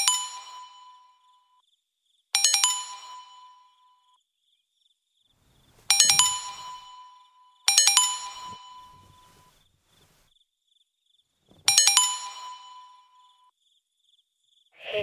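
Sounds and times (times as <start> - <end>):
phone notification chime: 5.9 - 6.9.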